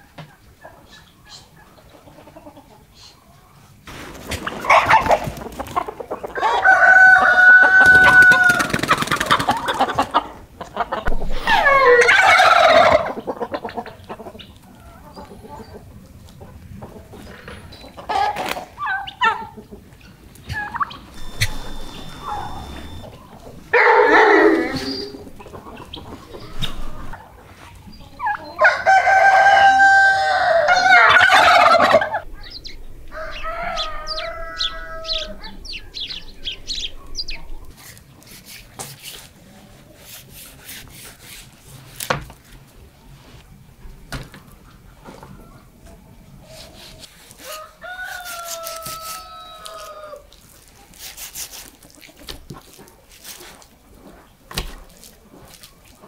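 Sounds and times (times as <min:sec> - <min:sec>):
rooster crowing: 0:06.4 - 0:08.7, 0:11.4 - 0:13.0, 0:21.1 - 0:25.3, 0:28.6 - 0:32.1, 0:33.1 - 0:35.6, 0:47.4 - 0:50.2.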